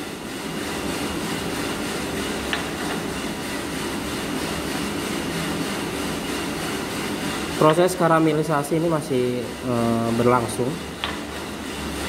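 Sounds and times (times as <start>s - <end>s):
coffee roaster drum turning: 0.0s - 12.0s
machine motor and fan: 0.0s - 12.0s.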